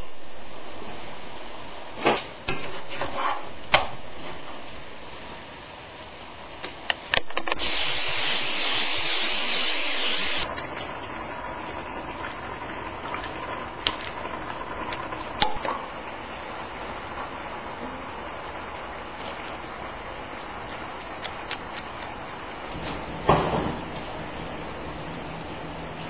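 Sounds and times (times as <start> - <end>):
loud even hiss: 7.2 - 10.5.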